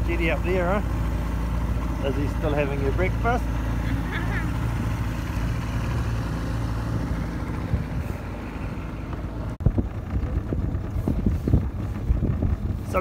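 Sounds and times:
outboard motor running: 0:00.0 - 0:13.0
wind bumps on microphone: 0:09.6 - 0:13.0.

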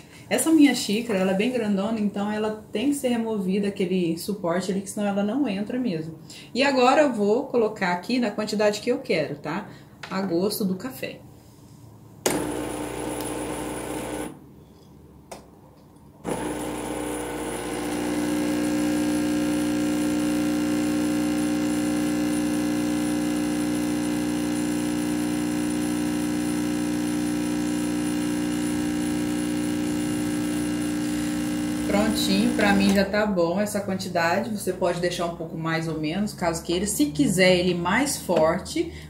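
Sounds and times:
espresso machine pump humming: 0:12.3 - 0:14.4, 0:16.3 - 0:33.0.

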